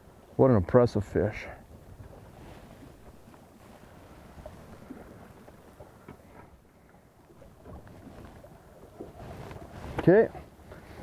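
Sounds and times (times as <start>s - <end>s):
faint wind: 0.0s - 11.0s
water around a boat: 0.0s - 11.0s
light clicks and rustles: 7.6s - 11.0s.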